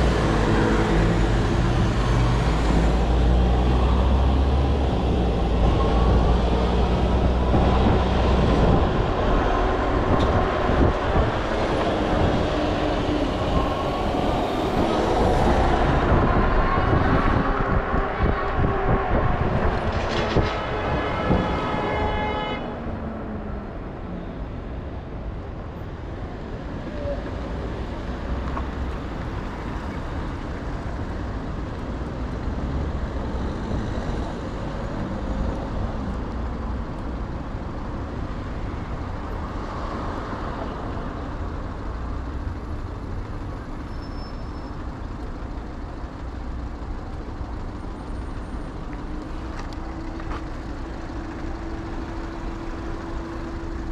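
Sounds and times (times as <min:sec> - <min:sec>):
street traffic: 0:00.0 - 0:53.9
wind rumble on microphone: 0:01.2 - 0:22.1
vehicle horn: 0:16.7 - 0:22.8.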